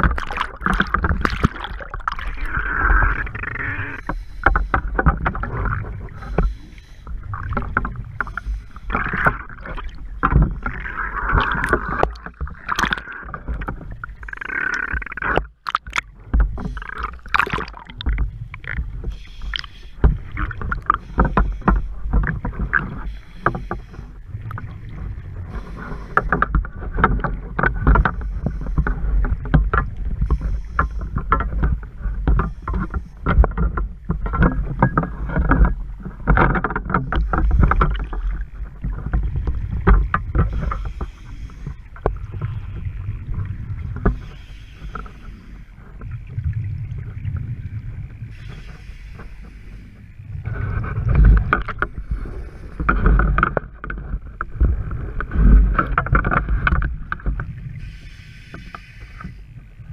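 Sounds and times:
exhale bubbling underwater: 0:00.0 - 0:23.2, 0:37.0 - 0:49.6
low rumble of water: 0:00.0 - 0:59.9
regulator inhale hiss: 0:04.0 - 0:04.8, 0:06.2 - 0:07.1, 0:19.1 - 0:20.0, 0:23.0 - 0:24.1, 0:40.6 - 0:41.8, 0:44.2 - 0:45.8, 0:48.3 - 0:50.1, 0:57.8 - 0:59.5.

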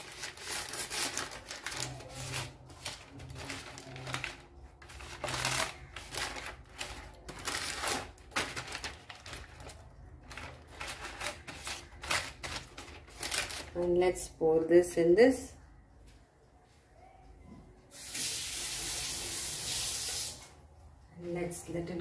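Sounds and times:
baking paper rustling and crinkling: 0:00.0 - 0:14.0.

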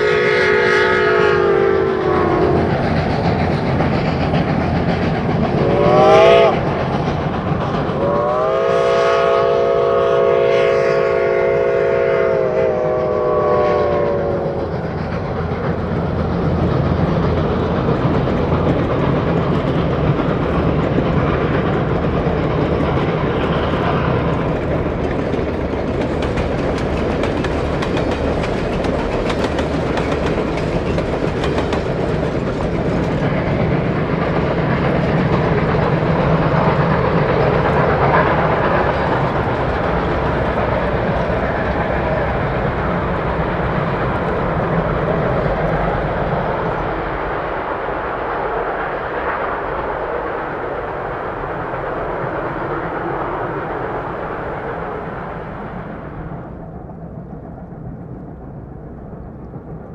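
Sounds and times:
steam whistle blasts: 0:00.0 - 0:02.7, 0:05.6 - 0:06.6, 0:08.0 - 0:14.6
train rumbling: 0:00.0 - 0:59.9
wheels clicking over rails: 0:01.8 - 0:08.3, 0:14.4 - 0:47.3.

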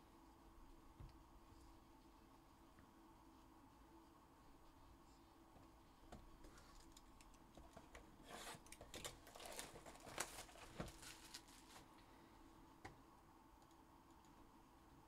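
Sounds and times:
rustling and crinkling: 0:06.4 - 0:11.9.

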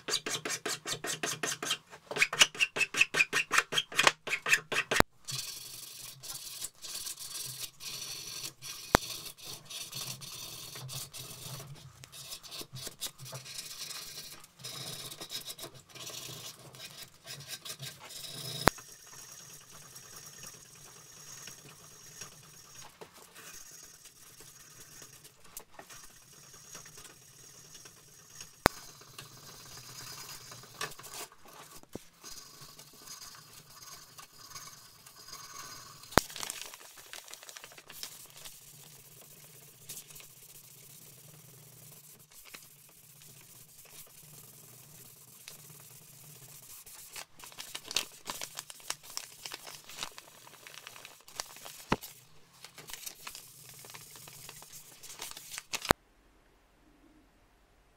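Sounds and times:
abrasive strip rasping on wood: 0:00.0 - 0:18.8.

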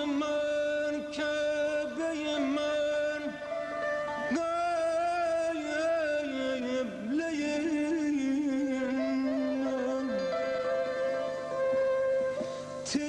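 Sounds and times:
chamber music with gliding melody: 0:08.7 - 0:12.9.

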